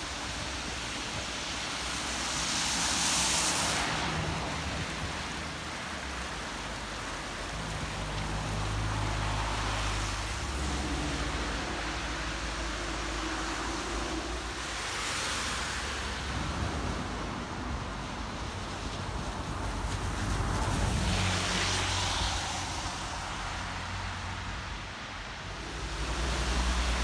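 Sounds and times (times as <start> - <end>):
wind rushing over microphone: 0.0 - 27.0.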